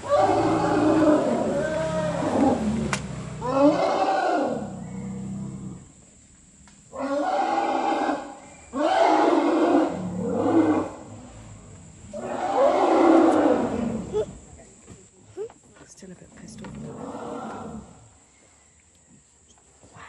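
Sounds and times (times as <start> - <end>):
elephants calling: 0.0 - 5.8.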